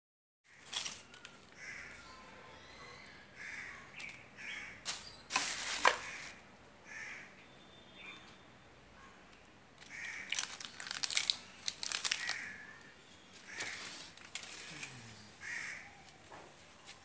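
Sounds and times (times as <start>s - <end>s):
crows cawing: 0.5s - 4.9s, 5.9s - 7.4s, 9.0s - 11.2s, 11.8s - 14.7s, 15.4s - 16.4s
plastic bag rustling: 4.8s - 6.4s, 9.8s - 12.6s, 13.3s - 15.0s.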